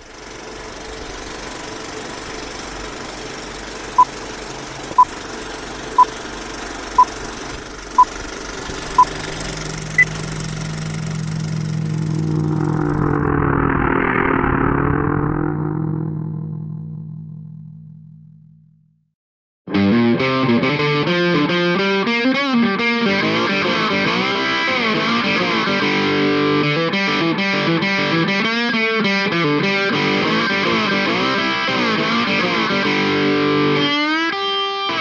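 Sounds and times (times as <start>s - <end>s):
film projector whirring and clatter: 0.0s - 11.7s
low drone: 8.6s - 18.7s
rising whoosh: 9.1s - 18.0s
higher beep: 9.9s - 10.2s
short beeps: 10.0s - 10.2s.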